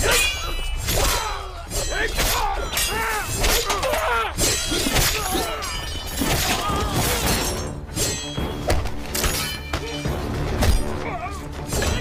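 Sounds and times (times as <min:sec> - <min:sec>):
men shouting: 0:00.0 - 0:07.4
dramatic orchestral score: 0:00.0 - 0:12.0.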